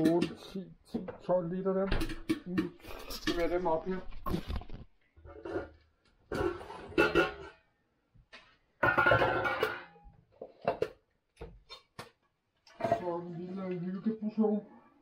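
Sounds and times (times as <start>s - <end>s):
glass and pot clattering: 5.4s - 7.6s, 8.8s - 10.0s.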